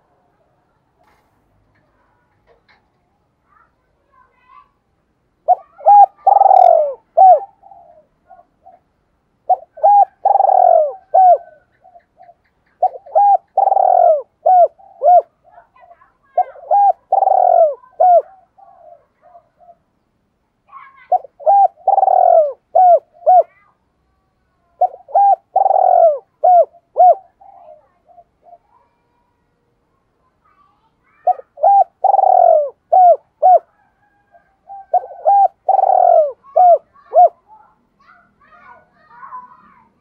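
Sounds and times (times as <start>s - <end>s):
dove cooing: 5.4s - 19.8s, 20.8s - 23.6s, 24.8s - 29.0s, 31.2s - 37.7s.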